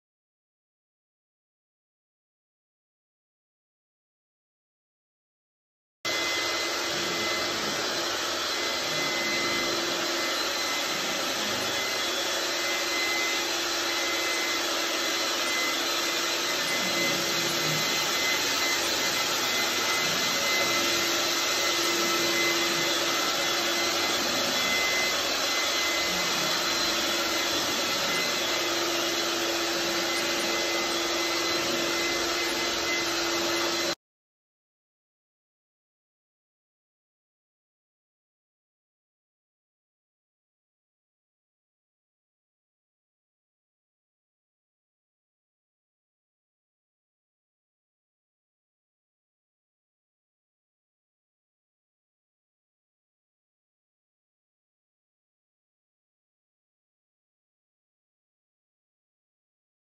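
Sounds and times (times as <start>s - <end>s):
shop vac whining: 6.1s - 34.0s
brush head rubbing drywall: 6.2s - 34.0s.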